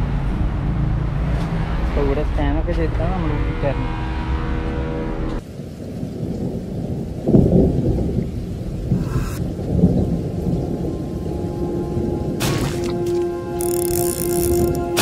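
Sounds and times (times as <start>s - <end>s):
loud low rumble: 0.0s - 5.4s.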